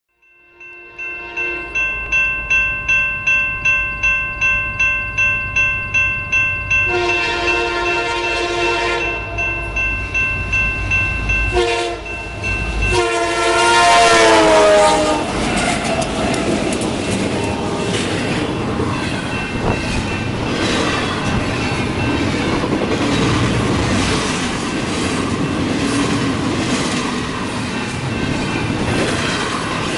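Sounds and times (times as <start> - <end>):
crossing bell dinging: 0.2 - 29.9
locomotive horn blasts: 0.5 - 1.8, 6.9 - 9.4, 11.5 - 12.2, 12.9 - 15.4
train wheels clattering: 12.3 - 29.9.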